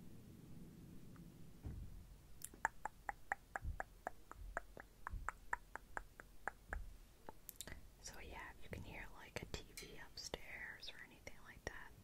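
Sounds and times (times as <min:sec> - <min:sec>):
soft low thumps: 0:01.2 - 0:07.4.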